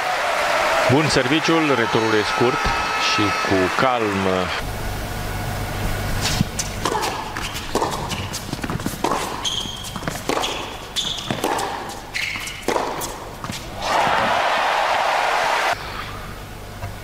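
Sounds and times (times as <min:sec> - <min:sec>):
rackets striking tennis ball: 0:06.2 - 0:14.3
shoe squeaks on court: 0:07.4 - 0:12.8.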